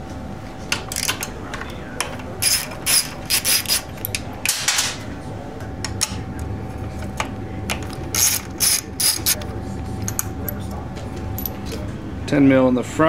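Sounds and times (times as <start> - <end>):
socket ratchet clicking: 2.4 - 3.8.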